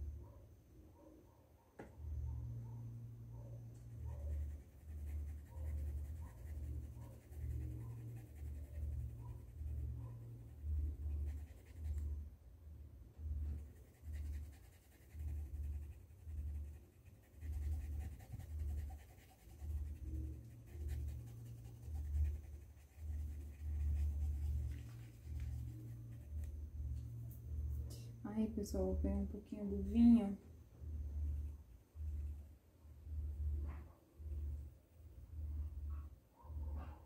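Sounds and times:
bristles scratching cloth: 0:16.5 - 0:26.5.

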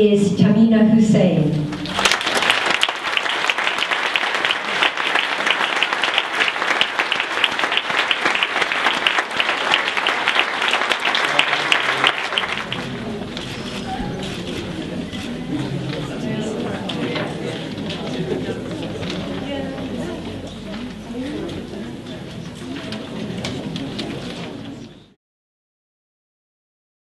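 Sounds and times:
audience applauding: 0:01.7 - 0:13.6
low voices: 0:07.6 - 0:25.1.

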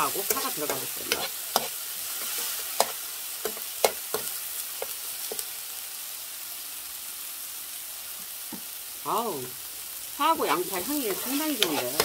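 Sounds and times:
metal spoon scraping pan: 0:00.0 - 0:05.4, 0:10.5 - 0:12.0
onion sizzling in oil: 0:00.0 - 0:12.0.

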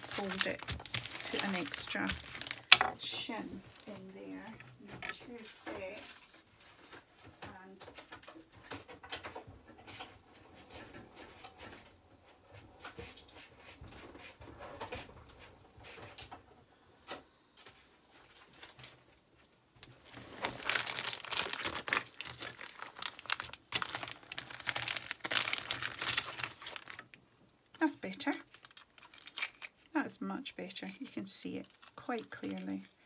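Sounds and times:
plastic pocket crinkling: 0:00.0 - 0:03.0, 0:19.8 - 0:29.9, 0:30.8 - 0:33.0.

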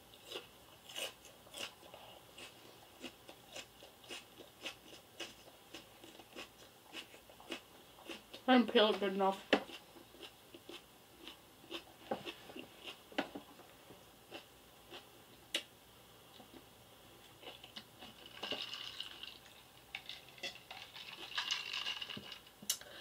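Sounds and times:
person chewing crunchy food: 0:00.1 - 0:08.4, 0:09.6 - 0:13.4, 0:14.3 - 0:15.1, 0:17.2 - 0:22.4.

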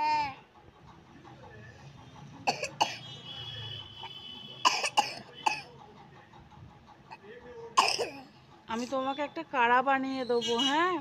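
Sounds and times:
child coughing: 0:02.5 - 0:03.0, 0:04.6 - 0:05.7, 0:07.8 - 0:08.3.

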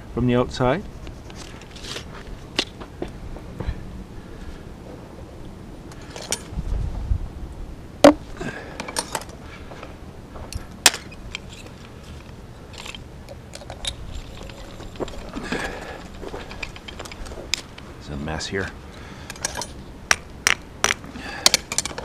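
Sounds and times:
hand tools clicking and knocking: 0:10.5 - 0:17.8, 0:19.3 - 0:22.0.

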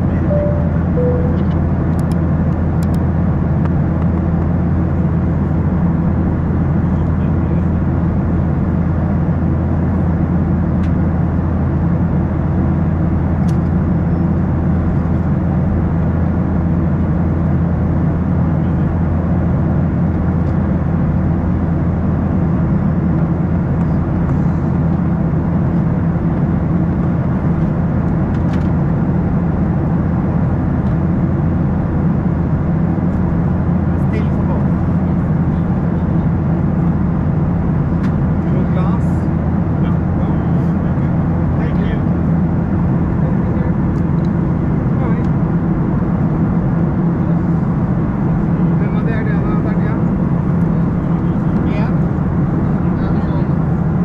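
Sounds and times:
jet engine drone: 0:00.0 - 0:54.0.

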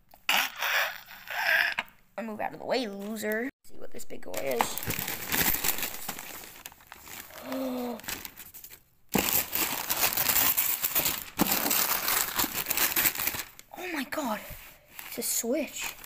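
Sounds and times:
wrapping paper tearing and crumpling: 0:04.3 - 0:16.0.

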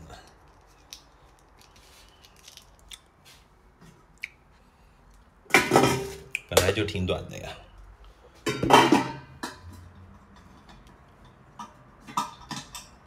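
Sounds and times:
pots clicking and tapping: 0:08.4 - 0:13.0.

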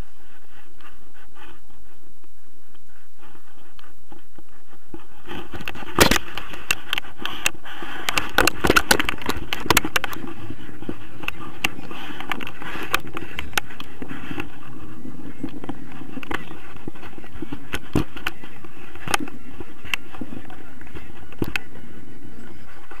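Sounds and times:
wind on microphone: 0:00.0 - 0:23.0
camera mount crackles and knocks: 0:05.5 - 0:10.3.

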